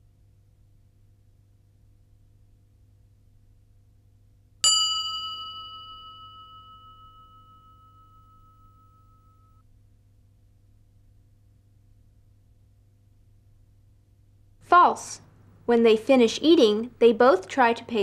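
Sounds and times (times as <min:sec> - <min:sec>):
bell ringing: 0:04.6 - 0:09.6.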